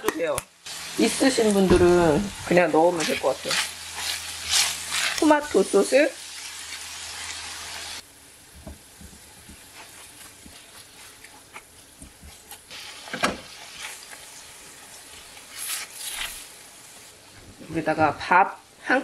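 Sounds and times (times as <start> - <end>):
meat sizzling in a frying pan: 0.5 - 17.2
spatula scraping and clicking in pan: 3.0 - 5.4, 9.0 - 14.3, 15.1 - 16.5.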